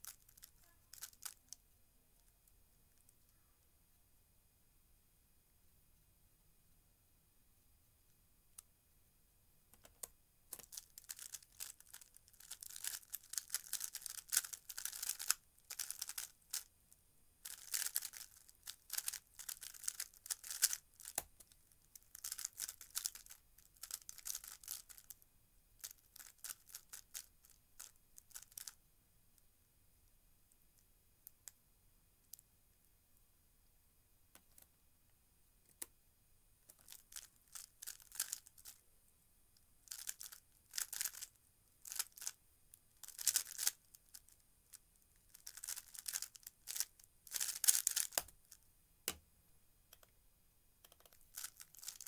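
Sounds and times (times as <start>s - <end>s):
puzzle cube clicking: 50.8s - 51.9s.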